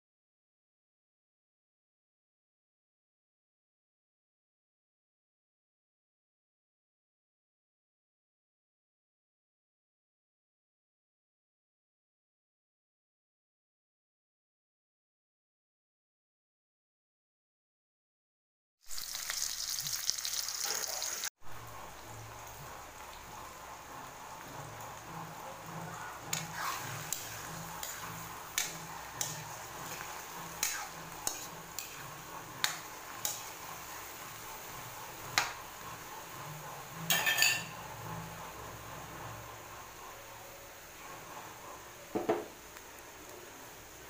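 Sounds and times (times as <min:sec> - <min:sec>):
okra sizzling in hot oil: 0:18.8 - 0:40.0
spatula scraping a pan: 0:25.3 - 0:36.1.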